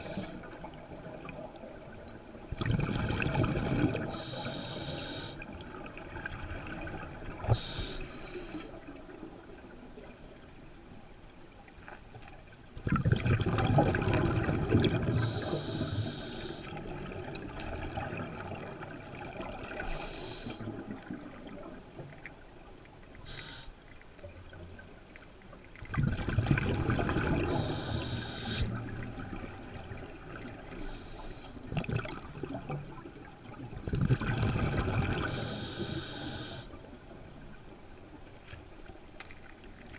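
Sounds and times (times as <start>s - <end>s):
exhaled bubbles rushing: 2.5s - 4.2s, 12.8s - 15.4s, 25.8s - 27.7s, 31.7s - 35.4s
hissing regulator inhalations: 4.1s - 5.4s, 7.5s - 8.7s, 15.2s - 16.7s, 19.9s - 20.6s, 23.3s - 23.8s, 27.5s - 28.8s, 35.3s - 36.7s.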